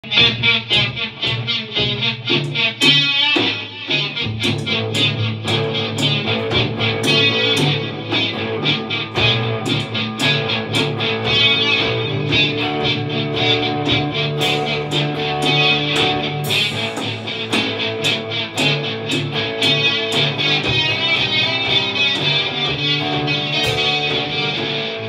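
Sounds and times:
electric guitars: 0.0s - 25.0s
drum kit beat on cymbals: 2.3s - 24.8s.

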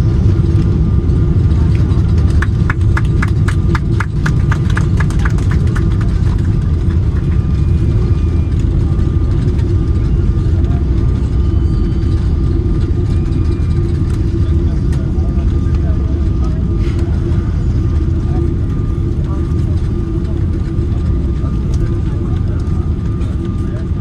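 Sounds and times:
airplane wheels and engines rumbling: 0.0s - 24.0s.

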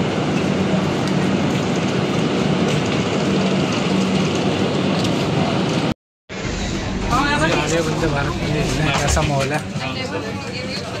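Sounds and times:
train noise: 0.0s - 11.0s
low hum: 6.3s - 10.1s.

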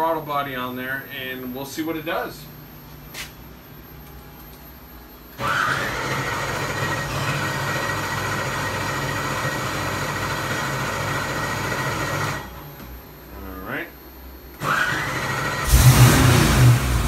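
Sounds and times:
engine starter cranking with whine: 5.3s - 12.5s, 14.6s - 17.0s.

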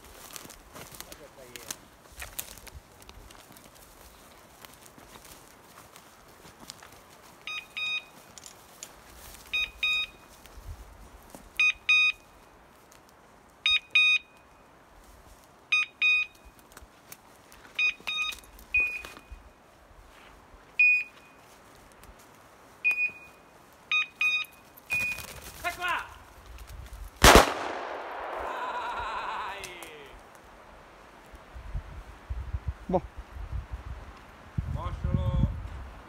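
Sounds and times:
short high beeps: 7.5s - 8.2s, 9.5s - 10.3s, 11.6s - 12.3s, 13.7s - 14.4s, 15.7s - 16.5s, 17.8s - 19.4s, 20.8s - 21.4s, 22.8s - 25.4s.

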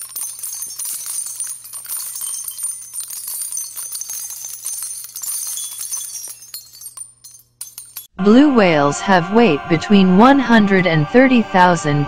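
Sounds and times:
jingling bells: 0.0s - 8.1s.

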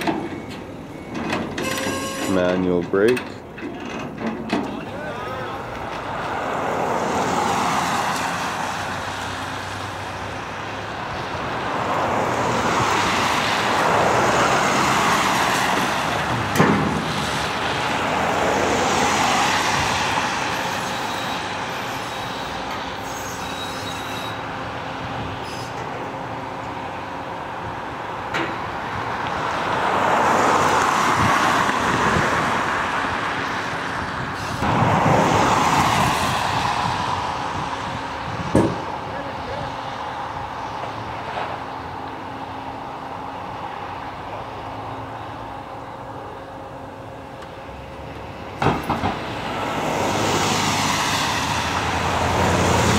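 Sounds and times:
road traffic passing: 0.0s - 52.9s
sharp knocks: 38.5s - 38.8s.

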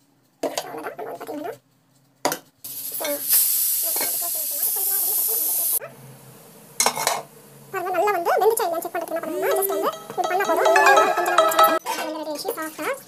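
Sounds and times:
steam hissing: 2.6s - 11.6s.

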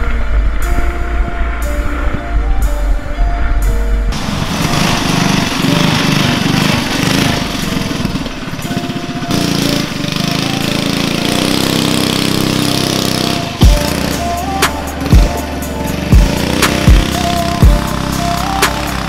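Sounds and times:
go-kart engine running: 4.1s - 19.0s.

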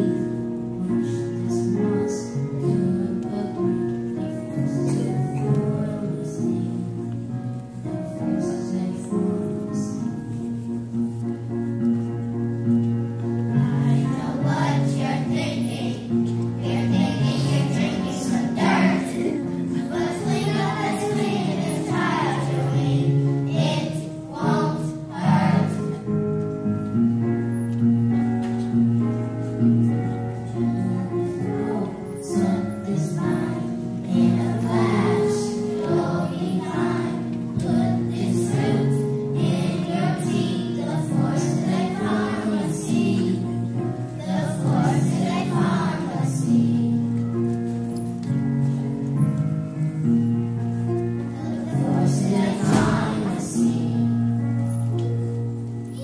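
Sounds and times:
children's choir singing: 0.0s - 10.4s, 13.4s - 26.4s, 30.1s - 47.6s, 51.2s - 54.9s
instrumental accompaniment: 0.0s - 56.0s.

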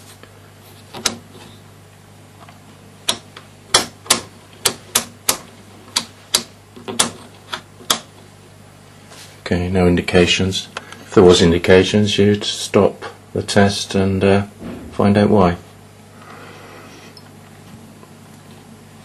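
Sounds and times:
rotary switch clicking: 3.0s - 8.1s
faint low hum: 8.2s - 19.0s.

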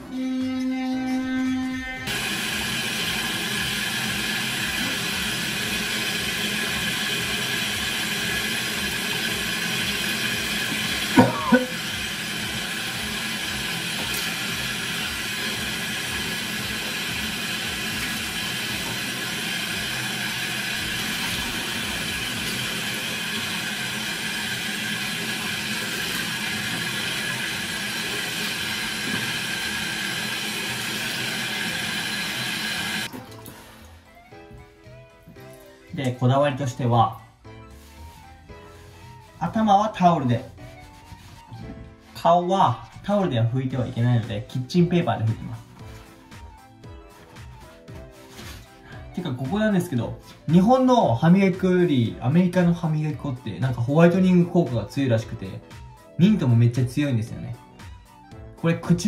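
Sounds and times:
tap water splashing into basin: 10.8s - 11.8s, 33.1s - 33.9s.

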